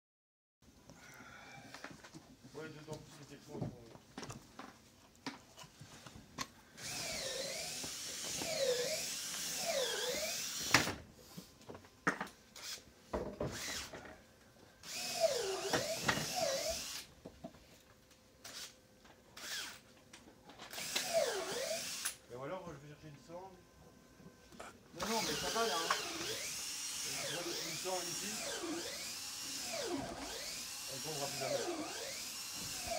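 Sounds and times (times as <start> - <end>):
electric drill driving screws: 6.8 - 11.0, 12.6 - 14.0, 14.8 - 17.1, 18.4 - 18.8, 19.4 - 19.8, 20.7 - 22.2, 25.0 - 32.9.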